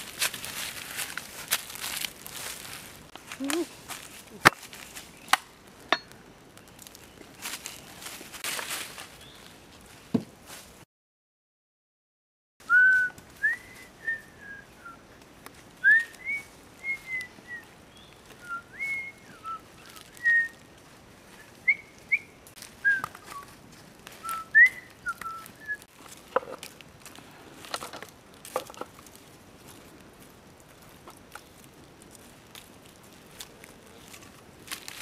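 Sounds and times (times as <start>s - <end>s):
sharp cracks and snaps: 4.4s - 8.9s, 25.1s - 35.0s.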